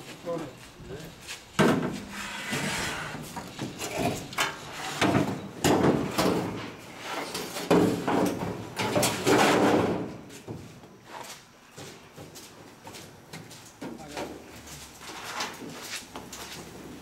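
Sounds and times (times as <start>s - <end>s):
metal scraping on metal: 2.0s - 5.5s.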